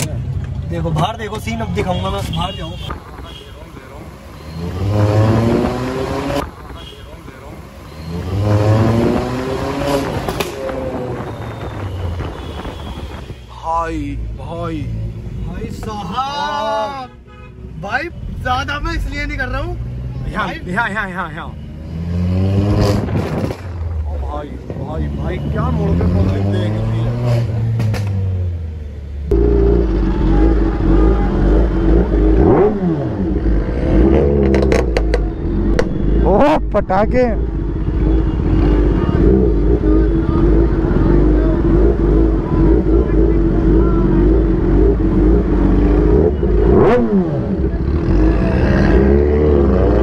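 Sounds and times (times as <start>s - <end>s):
engine idling and revving: 3.6s - 12.9s, 18.4s - 50.0s
sharp exhaust pops: 22.8s - 24.0s, 34.4s - 36.0s.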